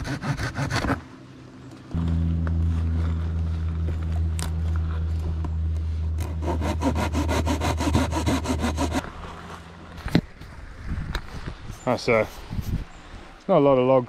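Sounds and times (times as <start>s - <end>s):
hand saw cutting branch: 0.0s - 1.1s, 6.2s - 9.4s
low engine-like hum: 1.2s - 11.6s.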